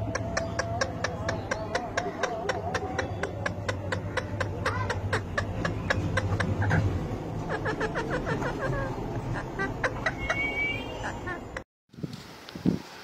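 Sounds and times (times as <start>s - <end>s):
parakeet mumbled chatter: 0.1s - 6.7s.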